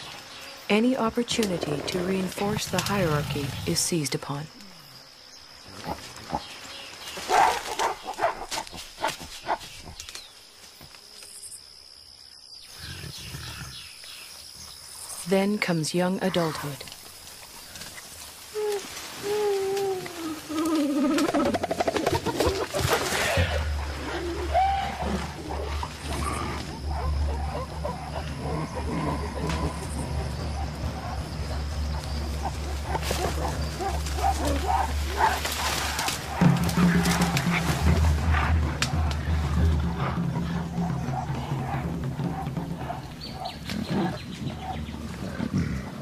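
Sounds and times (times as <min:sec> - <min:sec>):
gorillas barking and screaming: 0:05.7 - 0:10.2, 0:18.0 - 0:46.0.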